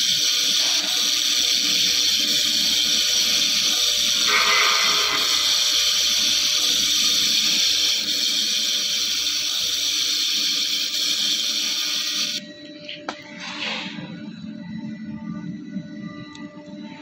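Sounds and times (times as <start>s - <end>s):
laser high-pitched hiss: 0.0s - 12.4s.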